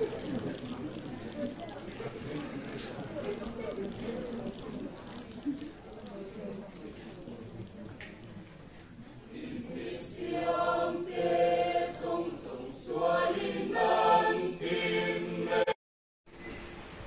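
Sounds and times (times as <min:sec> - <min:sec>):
vocal ensemble singing in harmony: 0:09.3 - 0:15.8.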